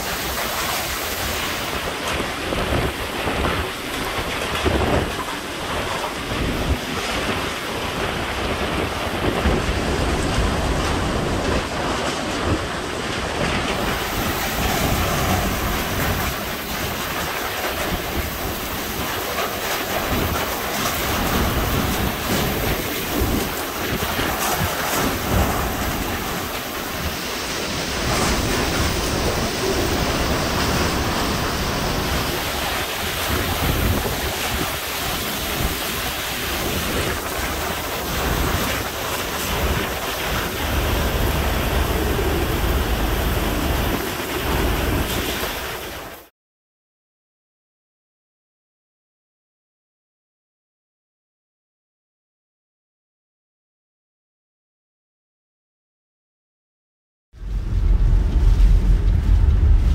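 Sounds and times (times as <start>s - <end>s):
wind buffeting microphone: 0.0s - 46.2s, 57.4s - 59.9s
driving rain: 0.0s - 46.3s, 57.4s - 59.9s
hurricane wind: 0.0s - 46.3s, 57.4s - 59.9s.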